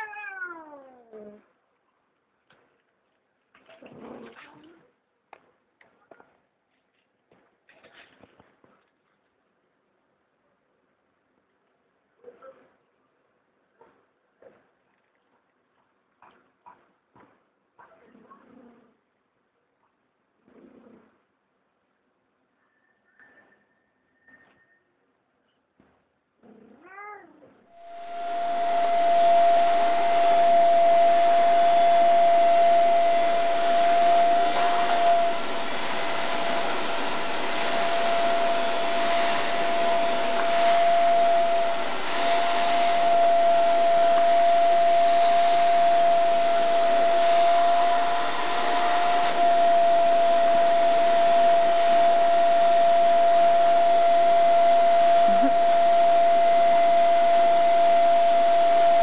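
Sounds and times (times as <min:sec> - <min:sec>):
vacuum cleaner running: 0:27.8 - 0:59.0.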